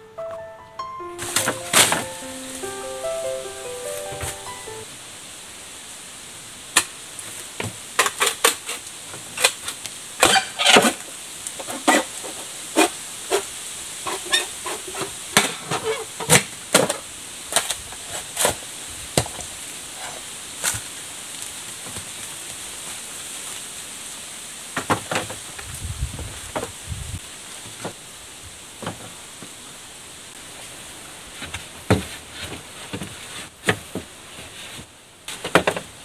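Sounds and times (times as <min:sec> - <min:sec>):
steady high hiss: 0:00.0 - 0:10.2.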